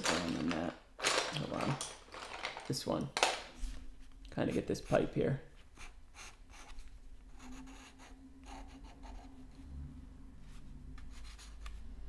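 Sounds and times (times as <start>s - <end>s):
coloured pencil scratching on paper: 4.4s - 9.7s, 10.5s - 11.9s.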